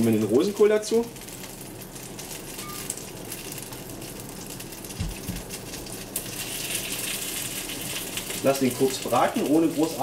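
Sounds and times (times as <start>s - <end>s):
butter sizzling in a frying pan: 0.0s - 10.0s
soft low thumps: 5.0s - 5.5s.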